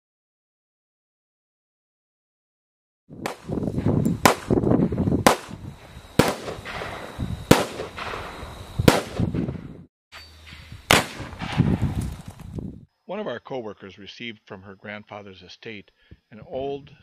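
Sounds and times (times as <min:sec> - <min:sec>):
loud echoing bangs: 0:06.2 - 0:09.6, 0:10.9 - 0:11.9.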